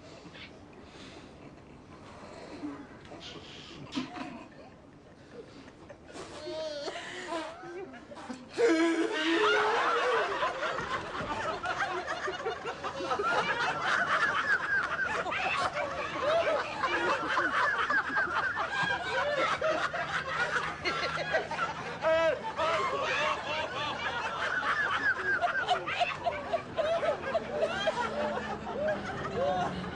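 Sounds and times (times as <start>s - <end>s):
crowd laughing: 7.0s - 29.9s.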